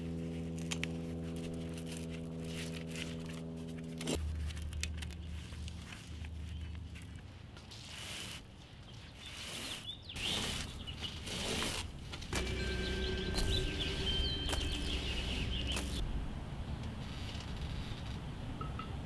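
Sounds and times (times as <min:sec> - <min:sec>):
rustling scrapes: 0:00.1 - 0:16.0, 0:17.0 - 0:18.2
small birds chirping: 0:08.8 - 0:11.4, 0:12.4 - 0:16.0
low rumble: 0:12.4 - 0:16.7.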